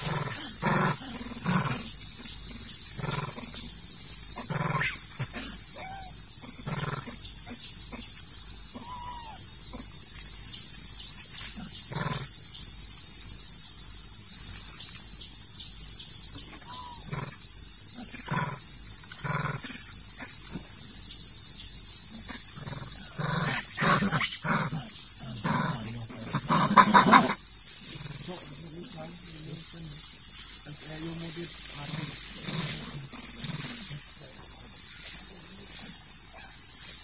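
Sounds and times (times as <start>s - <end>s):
macaques grunting and barking: 0.0s - 8.1s, 22.3s - 30.0s, 30.7s - 34.8s
high insect drone: 0.0s - 37.0s
macaque threat calls: 4.3s - 7.2s, 22.6s - 28.5s.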